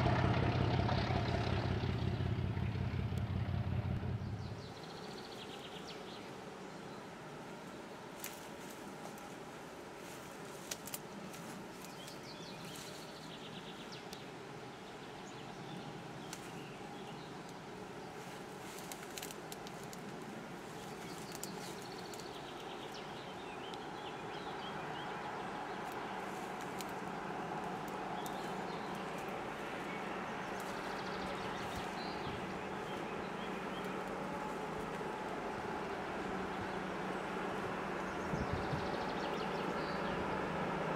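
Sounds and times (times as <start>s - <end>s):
diesel locomotive engine hum: 0.0s - 5.2s, 5.9s - 40.9s
birds chirping: 0.0s - 7.9s, 11.1s - 40.9s.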